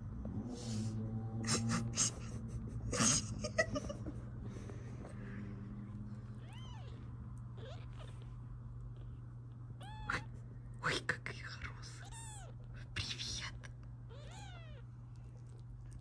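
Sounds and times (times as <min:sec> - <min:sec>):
steady low hum: 0:00.0 - 0:16.0
kittens mewing: 0:05.8 - 0:09.2, 0:09.8 - 0:10.4, 0:11.8 - 0:13.1, 0:14.1 - 0:14.9.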